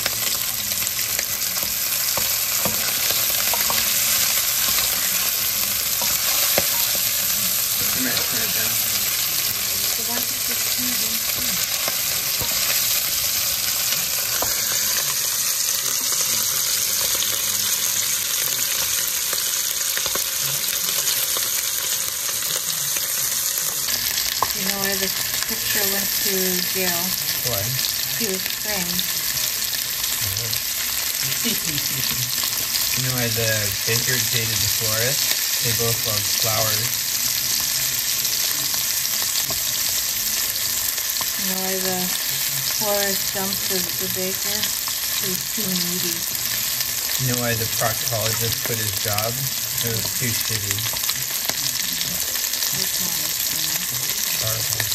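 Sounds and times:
sausage sizzling in hot oil: 0:00.0 - 0:54.9.

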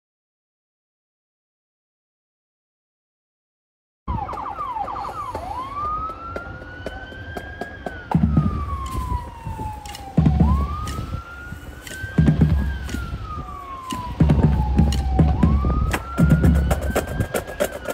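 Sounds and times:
emergency vehicle siren: 0:04.1 - 0:17.9.

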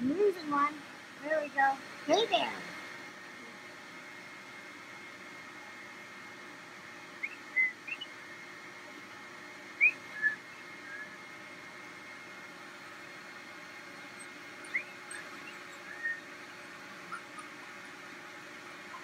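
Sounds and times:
faint background hum: 0:00.0 - 0:19.0
puppies whimpering: 0:14.1 - 0:18.1.

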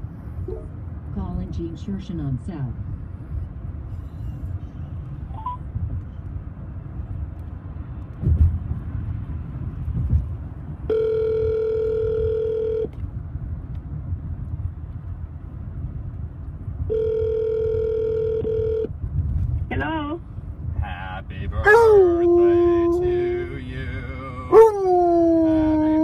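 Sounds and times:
road rumble in car: 0:00.0 - 0:26.0
telephone ringback tone: 0:10.9 - 0:12.9, 0:16.9 - 0:18.9.

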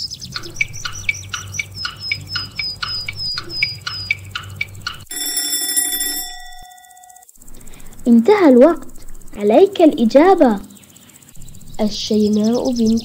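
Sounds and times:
timer ticking: 0:00.3 - 0:07.2
alarm clock ringing: 0:01.4 - 0:07.4.

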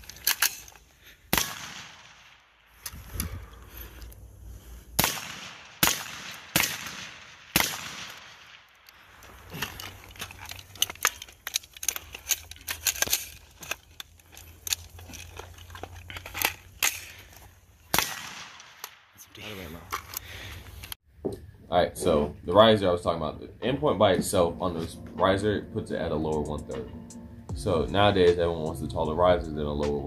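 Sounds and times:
gunshots: 0:01.3 - 0:02.4, 0:05.0 - 0:08.6, 0:17.9 - 0:18.9.

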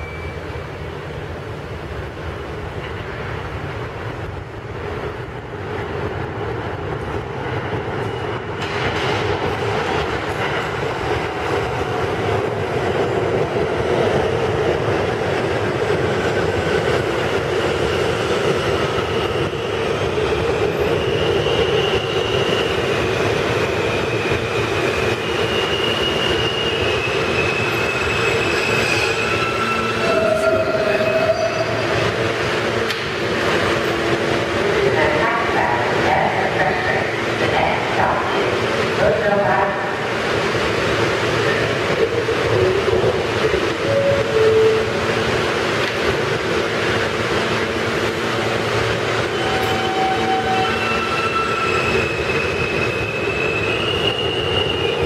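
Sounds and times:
high-pitched brake squeals: 0:00.0 - 0:00.5, 0:23.7 - 0:31.9, 0:49.2 - 0:55.0
subway train rumbling: 0:00.0 - 0:55.0.

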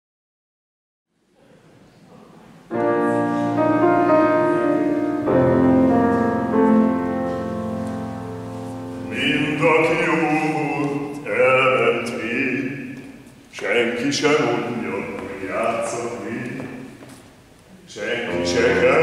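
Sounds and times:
grand piano chords: 0:02.6 - 0:19.0
male opera singer singing: 0:09.0 - 0:16.9, 0:17.9 - 0:19.0.

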